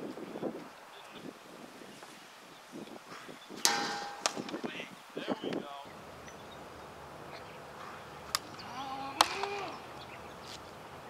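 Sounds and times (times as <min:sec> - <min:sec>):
plastic ball cracking against bat: 0:09.2 - 0:09.8.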